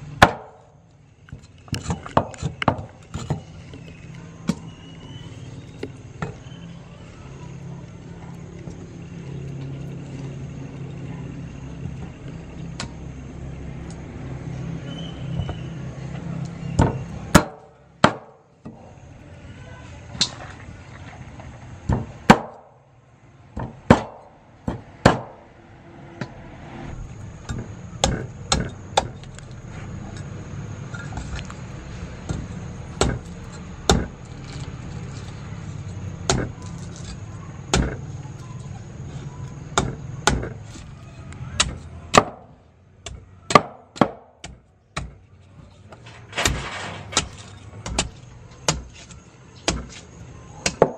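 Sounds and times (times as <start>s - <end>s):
steady low hum: 0.0s - 43.1s
blade hacking into coconut: 0.2s - 0.6s, 43.1s - 45.2s
cleaver chopping on wooden block: 0.2s - 0.6s, 16.8s - 18.4s, 21.9s - 22.7s, 23.6s - 25.3s, 39.8s - 40.6s, 41.6s - 45.2s, 50.6s - 50.9s.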